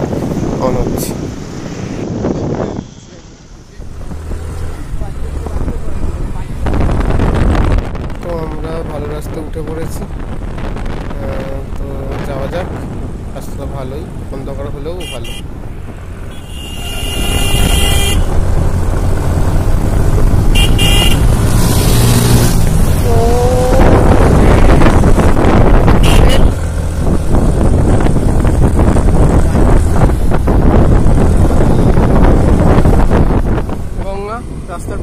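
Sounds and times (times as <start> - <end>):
vehicle horn toots: 15.0 - 15.5, 16.3 - 18.4, 20.5 - 21.3, 25.9 - 26.6
scooter riding rumble: 17.8 - 34.0.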